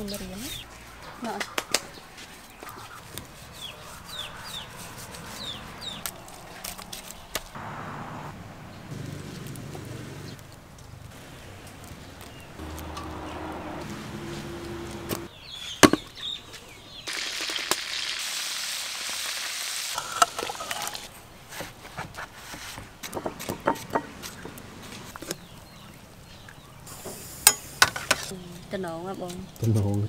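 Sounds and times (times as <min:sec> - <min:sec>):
cooking hiss: 0:17.1 - 0:28.3.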